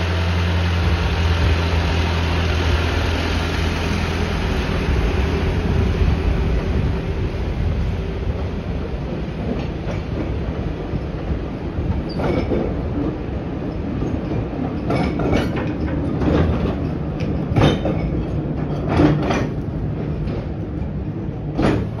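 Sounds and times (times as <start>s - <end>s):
diesel locomotive rumble: 0.0s - 22.0s
wagon wheels clanking over rail joints: 7.6s - 22.0s.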